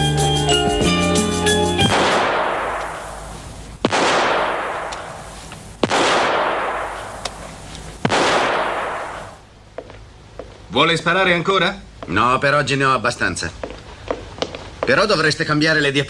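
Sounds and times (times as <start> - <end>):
theme music: 0.0 - 2.2
echoing gunshots: 1.9 - 7.4, 8.0 - 9.5.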